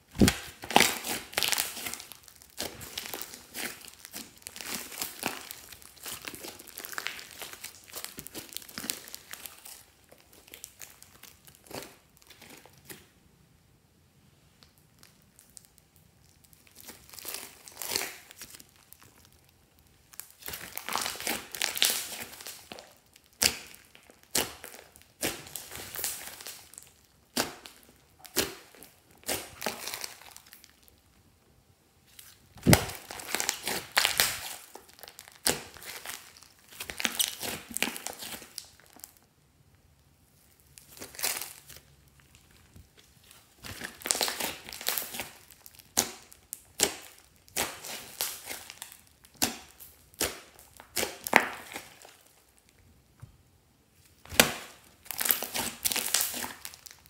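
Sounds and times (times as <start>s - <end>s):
slime squishing and crackling: 0.0s - 13.2s, 14.6s - 31.2s, 32.1s - 39.3s, 40.2s - 52.8s, 54.0s - 57.0s.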